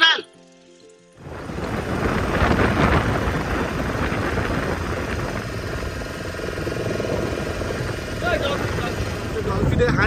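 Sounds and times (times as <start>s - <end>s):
boat motor running: 1.2s - 10.0s.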